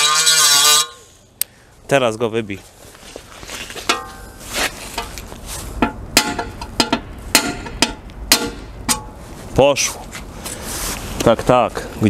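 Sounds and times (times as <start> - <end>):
hammer striking metal punch: 5.8 - 9.2.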